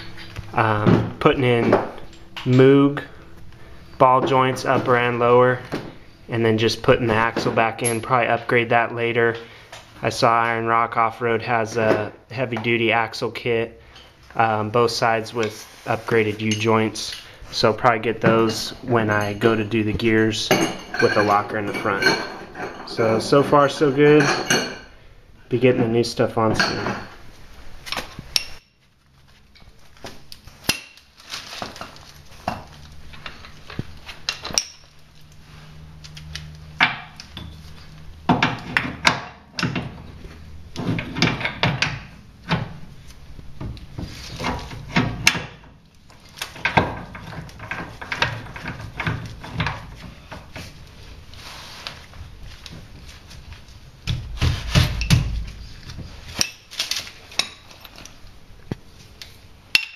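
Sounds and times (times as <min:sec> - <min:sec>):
metal clanks and knocks: 0:00.0 - 0:03.2, 0:18.1 - 0:24.9, 0:26.4 - 0:27.2, 0:36.8 - 0:42.9, 0:43.6 - 0:45.8, 0:46.4 - 0:50.7, 0:54.0 - 0:56.8
metal scraping: 0:15.4 - 0:25.0.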